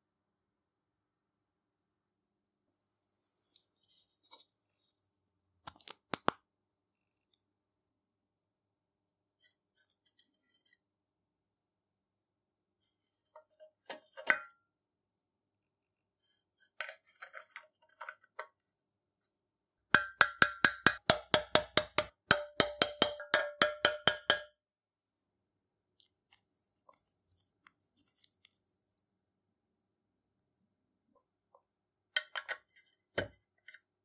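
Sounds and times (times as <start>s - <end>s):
hammer striking metal punch: 20.0s - 24.5s.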